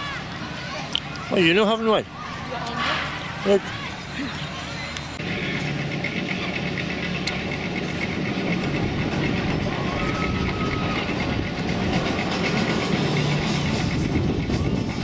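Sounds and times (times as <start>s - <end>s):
steady mechanical hum: 0.0s - 15.0s
roller coaster chain lift clicking: 4.9s - 15.0s.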